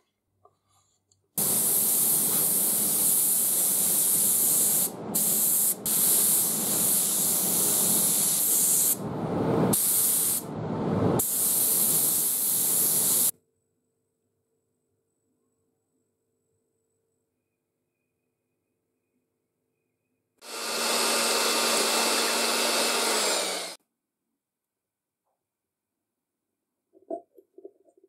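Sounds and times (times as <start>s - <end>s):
paint spray gun hissing: 1.4s - 9.0s, 9.7s - 10.5s, 11.2s - 13.3s, 20.4s - 23.8s.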